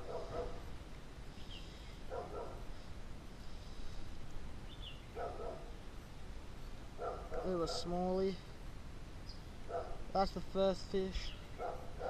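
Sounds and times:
dog barking: 0.0s - 0.6s, 2.1s - 2.7s, 5.1s - 5.7s, 7.0s - 7.9s, 9.7s - 10.0s, 11.6s - 12.0s
outdoor background hiss: 0.0s - 12.0s.

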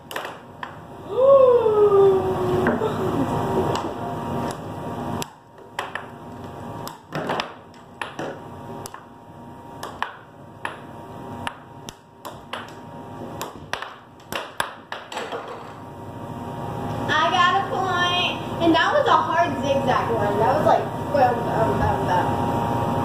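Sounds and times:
air hockey puck clacking: 6.9s - 9.0s, 11.4s - 12.8s, 13.4s - 15.8s.

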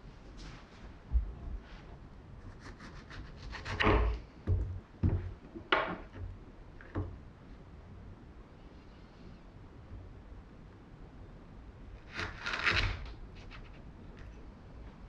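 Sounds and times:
knocks and scrapes on wood: 3.5s - 6.3s.

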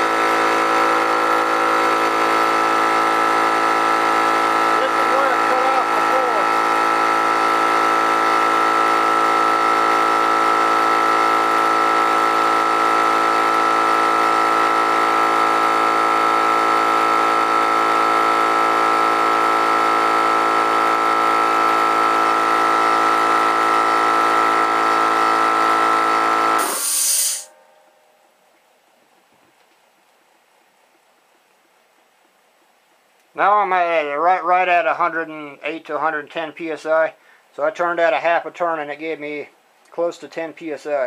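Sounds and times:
air compressor running: 0.0s - 27.6s
short hiss of air: 26.6s - 27.5s.

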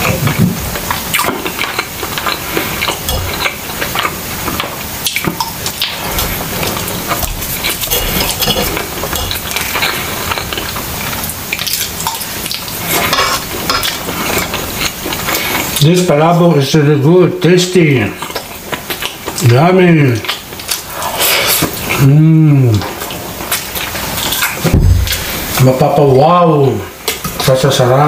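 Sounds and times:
wet chewing and mouth sounds: 0.0s - 15.8s, 18.1s - 25.7s
fork clinking on ceramic plate: 7.8s - 9.4s.

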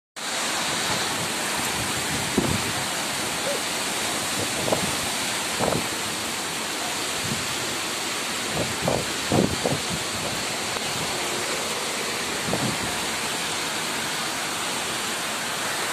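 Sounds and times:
heavy rain pouring: 0.2s - 15.9s
strong wind: 0.5s - 6.1s, 7.2s - 7.8s, 8.4s - 13.5s.

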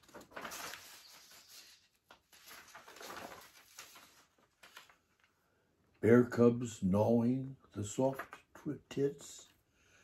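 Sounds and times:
paper sheets rustling: 0.0s - 5.3s.

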